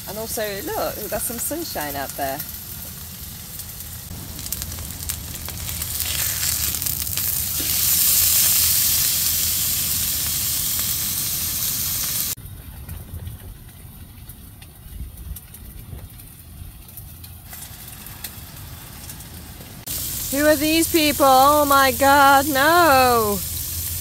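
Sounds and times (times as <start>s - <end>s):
steak sizzling in a pan: 0.3s - 12.4s, 19.8s - 24.0s.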